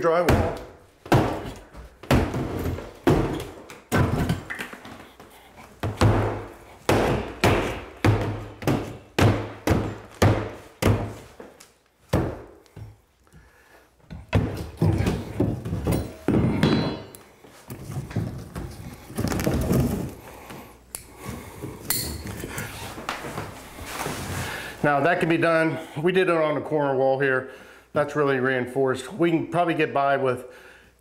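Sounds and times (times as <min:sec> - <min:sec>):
metal bar thudding through drywall: 0:00.2 - 0:04.6.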